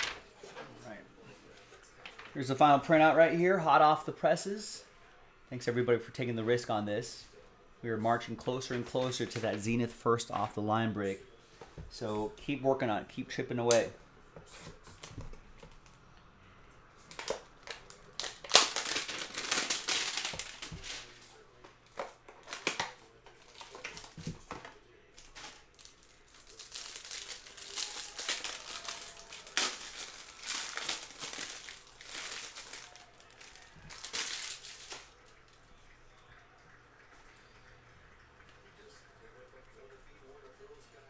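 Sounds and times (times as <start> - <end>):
plastic wrap crinkling and tearing: 17.0 - 35.5.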